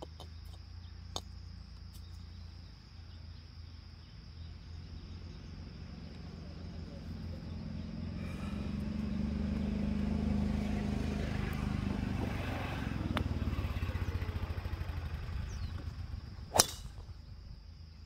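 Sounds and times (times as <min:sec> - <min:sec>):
low engine hum: 0:00.0 - 0:18.0
golf club striking ball: 0:16.5 - 0:17.3.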